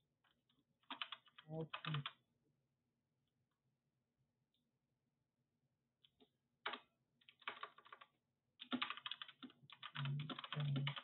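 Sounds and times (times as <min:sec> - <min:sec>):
computer keyboard typing: 0:00.9 - 0:02.2, 0:06.6 - 0:11.0.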